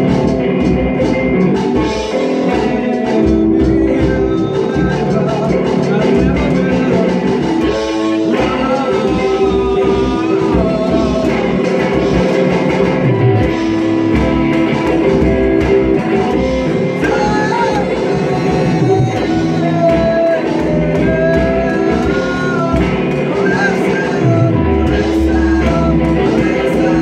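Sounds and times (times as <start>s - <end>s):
person singing: 0.0s - 27.0s
rock music on electric guitars: 0.0s - 27.0s.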